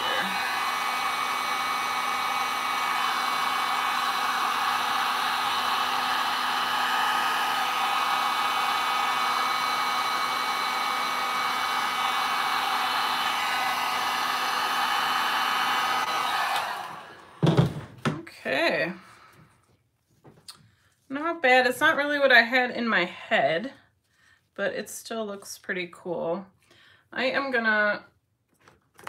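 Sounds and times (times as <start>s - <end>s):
heat gun blowing: 0.0s - 17.8s.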